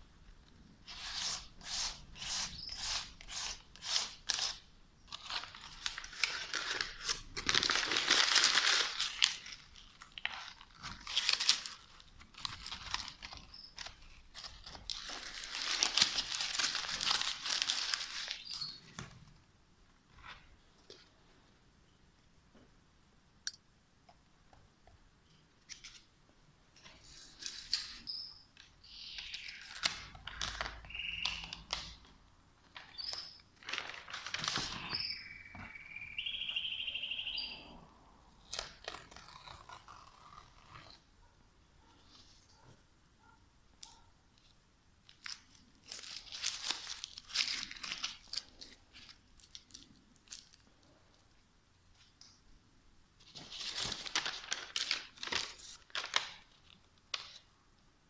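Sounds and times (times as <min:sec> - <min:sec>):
paper crumpling: 0:05.1 - 0:18.8, 0:32.7 - 0:35.2, 0:45.1 - 0:50.9, 0:53.2 - 0:57.5.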